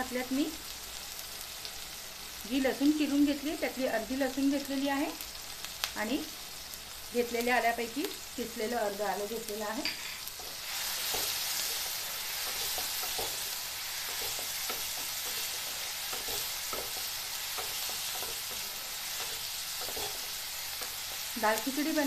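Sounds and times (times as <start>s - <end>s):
food sizzling in a pan: 0.0s - 22.0s
spatula scraping and tapping pan: 9.8s - 21.2s.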